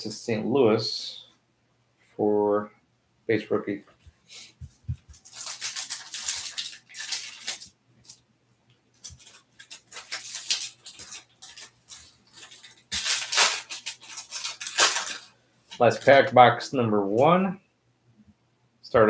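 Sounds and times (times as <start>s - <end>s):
foil wrapper crinkling: 5.1s - 8.2s, 8.9s - 16.2s.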